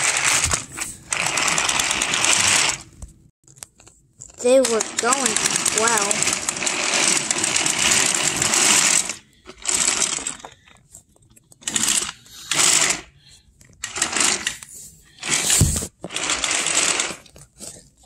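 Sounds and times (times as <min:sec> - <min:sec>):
toy trains rattling on plastic track: 0:00.0 - 0:02.9, 0:04.4 - 0:10.6, 0:11.6 - 0:13.2, 0:13.8 - 0:17.3.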